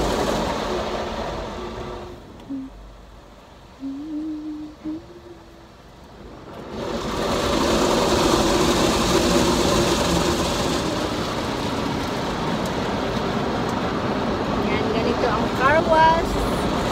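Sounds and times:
car wash water spray and brushes: 0:00.0 - 0:16.9
wavering hum: 0:03.8 - 0:05.8.

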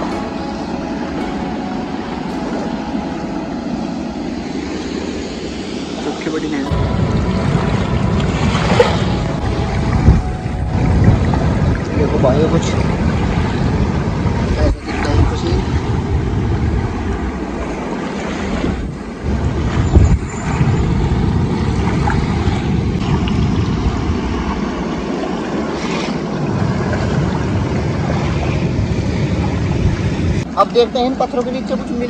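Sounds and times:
water rushing down a weir: 0:00.0 - 0:32.0.

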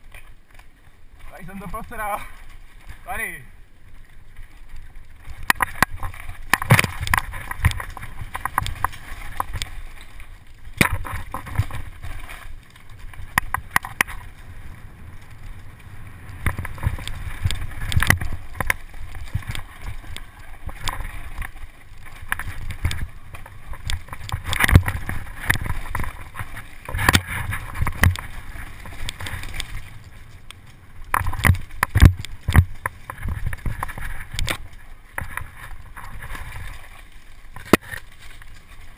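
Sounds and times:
bike knocks and rattles: 0:05.2 - 0:36.6
tyres rumbling: 0:11.1 - 0:36.5
wind on microphone: 0:13.2 - 0:21.6.

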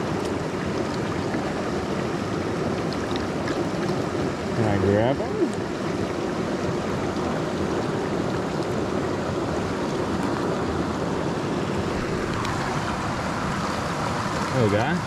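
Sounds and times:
creek running over stones: 0:00.0 - 0:15.0.

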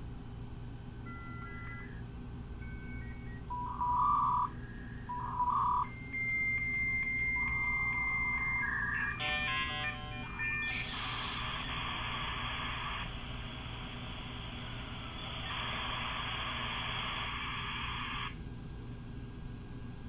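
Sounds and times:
modem dialing tones: 0:01.1 - 0:02.0, 0:02.6 - 0:13.2, 0:14.6 - 0:18.4
high modem answer tone: 0:02.6 - 0:13.1
loud buzzy modem bursts: 0:07.4 - 0:18.4.

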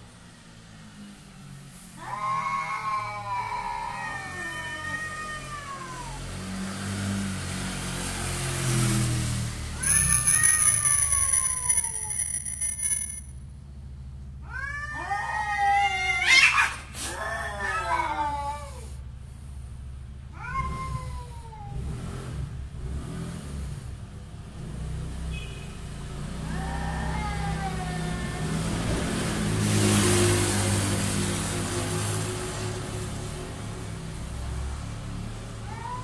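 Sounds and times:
cats caterwauling: 0:02.0 - 0:06.4, 0:09.8 - 0:12.6, 0:14.4 - 0:19.0, 0:20.3 - 0:22.0, 0:26.4 - 0:28.9, 0:35.6 - 0:36.0.

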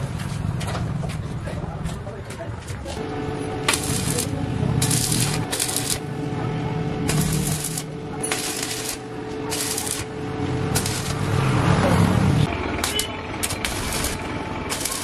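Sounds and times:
welding arc crackling: 0:02.9 - 0:15.0
steady hum: 0:03.0 - 0:11.4, 0:12.4 - 0:15.0.

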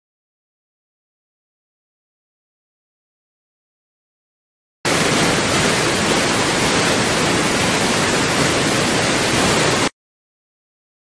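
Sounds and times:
loud steady hiss: 0:04.9 - 0:09.9.

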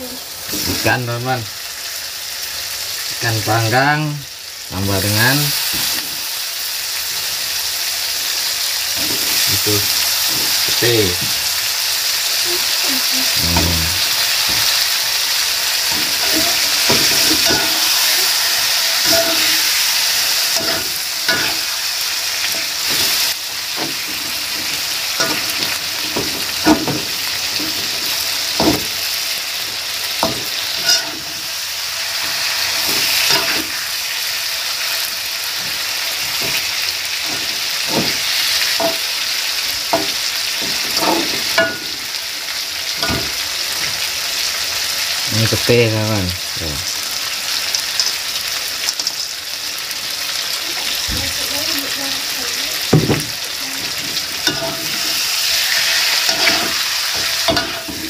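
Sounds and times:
food sizzling in a pan: 0:00.0 - 0:58.0
spatula scraping and knocking pan: 0:15.8 - 0:31.5, 0:35.6 - 0:39.2, 0:39.9 - 0:42.1, 0:43.0 - 0:44.0, 0:52.9 - 0:58.0.

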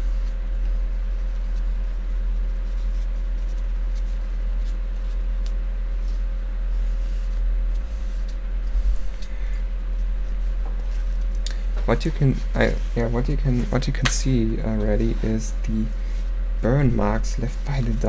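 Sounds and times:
steady low hum: 0:00.0 - 0:18.0
cloth rubbing on metal: 0:05.9 - 0:11.3, 0:11.9 - 0:14.0.

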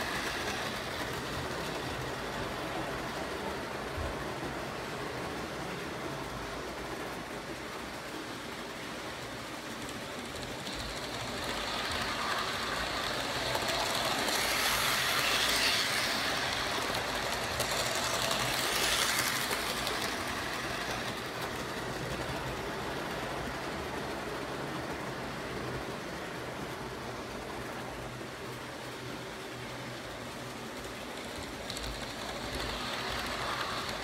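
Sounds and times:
model train running on track: 0:00.0 - 0:34.0.

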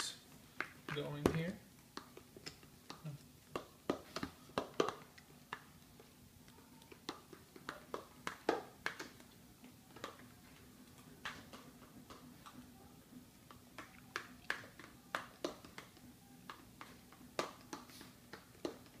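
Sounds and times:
batter mixing clicks and taps: 0:00.0 - 0:19.0
faint steady hum: 0:00.0 - 0:19.0.

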